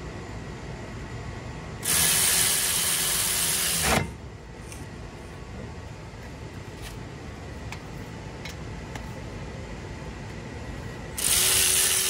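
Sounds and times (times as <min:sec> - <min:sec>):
ratchet wrench clicking: 0:11.2 - 0:12.0.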